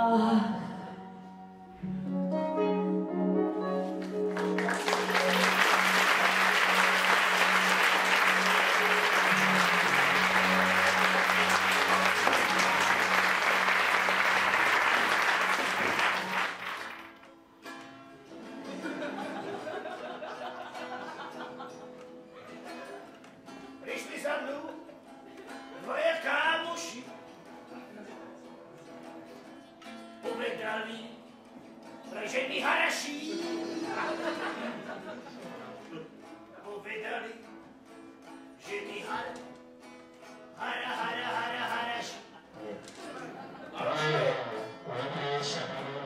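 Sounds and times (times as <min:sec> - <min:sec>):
acoustic guitar plucked: 0:00.0 - 0:46.0
instrumental song ending: 0:01.7 - 0:17.8, 0:33.2 - 0:36.4
audience applause: 0:04.0 - 0:17.3.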